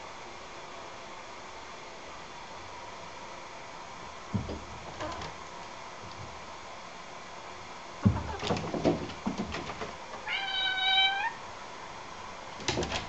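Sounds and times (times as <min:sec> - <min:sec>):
thump: 0:04.3 - 0:04.8
cat meowing: 0:10.2 - 0:11.4.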